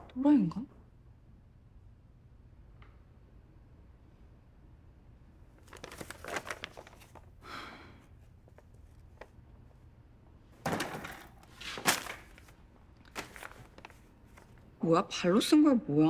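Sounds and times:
paper rustling: 0:05.6 - 0:07.3, 0:10.7 - 0:14.6.

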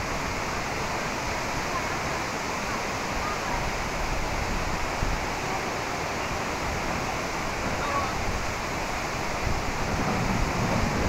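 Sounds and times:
fast-flowing river water: 0:00.0 - 0:11.0
faint voices: 0:05.2 - 0:08.4.

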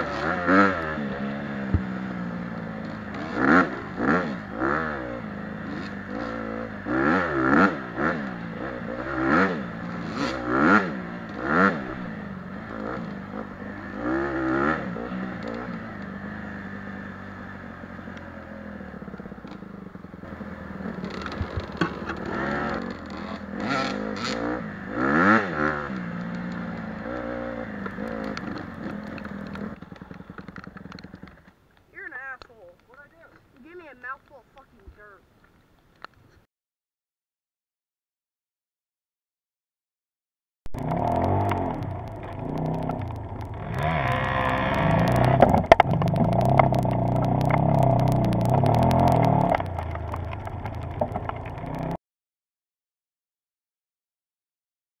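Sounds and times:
dirt bike engine revving: 0:00.0 - 0:32.4, 0:40.7 - 0:52.0.

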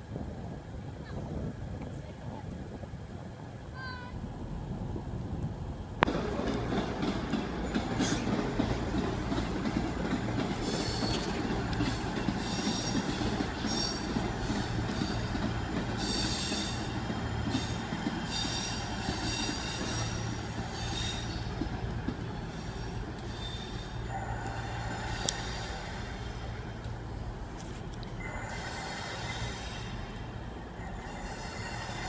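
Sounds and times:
train rumble: 0:00.0 - 0:32.0
steel wheel squeal: 0:10.5 - 0:15.3, 0:16.0 - 0:21.5, 0:22.5 - 0:26.1, 0:30.8 - 0:32.0.

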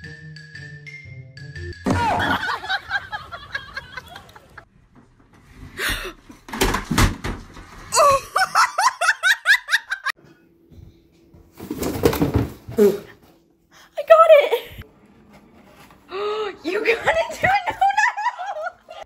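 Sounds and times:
person laughing: 0:01.9 - 0:04.6, 0:07.9 - 0:10.2, 0:17.5 - 0:19.0.

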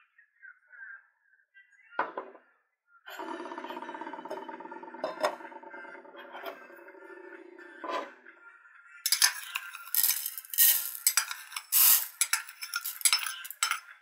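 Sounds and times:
grains pattering into a bowl: 0:09.1 - 0:13.8.

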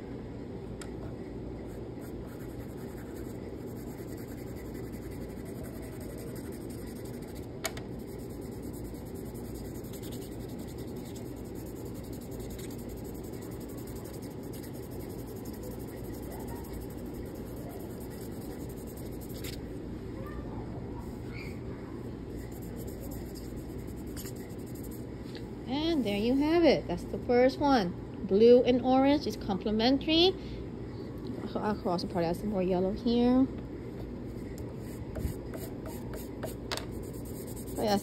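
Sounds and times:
low room noise: 0:00.0 - 0:38.0
chalk pastel scratching paper: 0:01.6 - 0:19.6, 0:22.4 - 0:25.0, 0:34.8 - 0:38.0
fingertips rubbing paper: 0:01.6 - 0:19.6, 0:22.4 - 0:25.0, 0:34.8 - 0:38.0.

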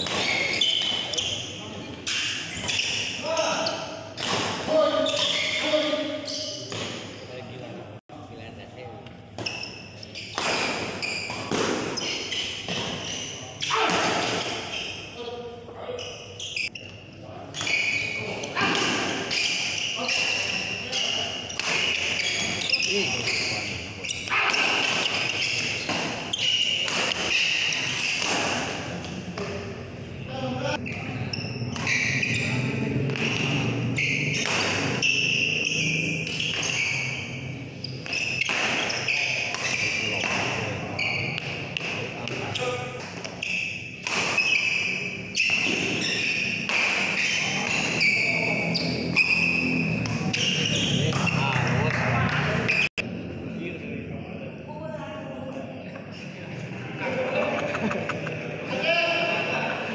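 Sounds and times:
racket hitting shuttlecock: 0:00.0 - 0:01.1, 0:10.3 - 0:13.0, 0:21.5 - 0:22.6, 0:24.4 - 0:29.2, 0:33.1 - 0:33.7, 0:34.3 - 0:35.6, 0:38.0 - 0:40.7, 0:43.0 - 0:48.0
shoes squeaking on court: 0:00.0 - 0:07.2, 0:09.4 - 0:15.2, 0:15.9 - 0:29.2, 0:30.8 - 0:53.0.

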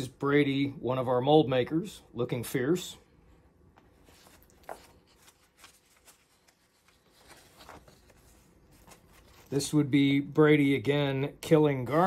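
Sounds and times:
book pages turning: 0:03.8 - 0:09.8.

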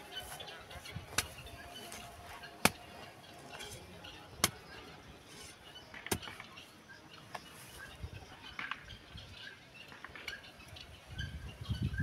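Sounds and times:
hoe chopping into soil: 0:01.1 - 0:01.4, 0:02.6 - 0:02.8, 0:06.0 - 0:06.4.

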